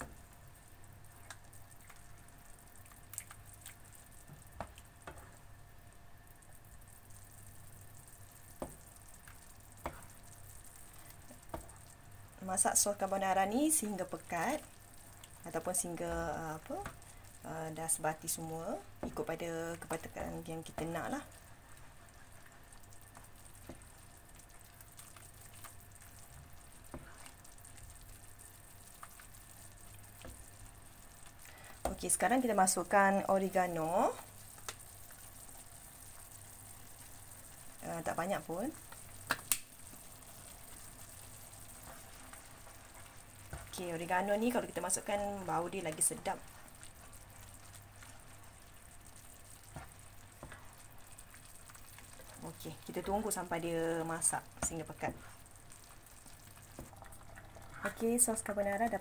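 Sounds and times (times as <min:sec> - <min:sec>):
cream sauce bubbling and sizzling: 0:00.0 - 0:59.0
faint steady hum: 0:00.0 - 0:59.0
spatula tapping and scraping pan: 0:08.6 - 0:08.9, 0:09.8 - 0:10.2.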